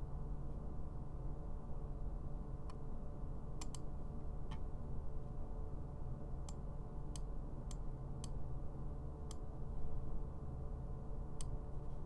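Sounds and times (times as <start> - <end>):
low electrical hum: 0.0 - 12.0
computer mouse clicking: 3.6 - 3.9.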